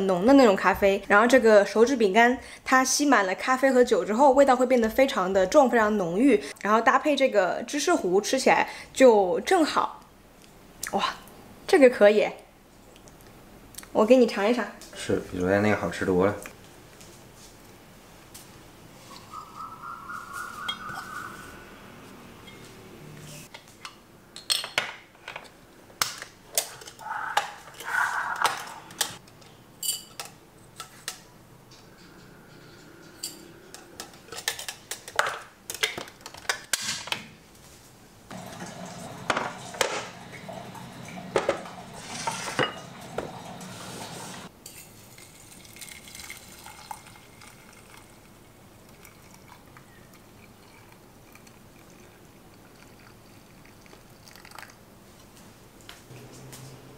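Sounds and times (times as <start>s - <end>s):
dishes and utensils clinking: 29.8s - 31.1s, 31.8s - 35.9s, 38.5s - 44.9s.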